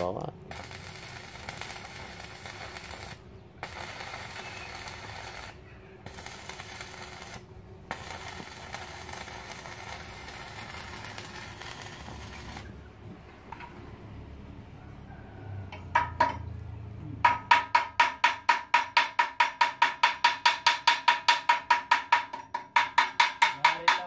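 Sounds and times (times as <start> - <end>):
arc welding: 0.0 - 12.9.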